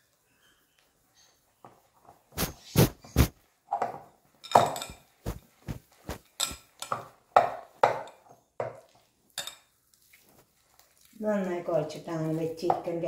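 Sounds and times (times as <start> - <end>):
glass bowl knocking and clinking: 3.8 - 5.1.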